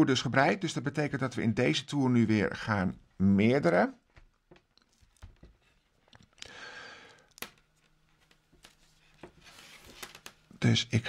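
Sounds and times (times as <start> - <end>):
soft rustle of yarn: 8.0 - 10.4.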